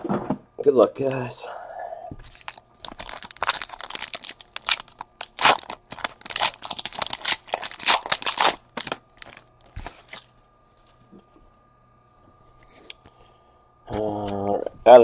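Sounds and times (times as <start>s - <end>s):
foil wrapper tearing and crinkling: 2.3s - 10.2s.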